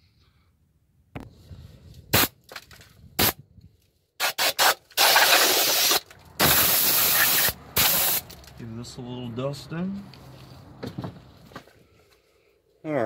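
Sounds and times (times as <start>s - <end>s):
aerosol spray can spraying: 4.2s - 8.3s.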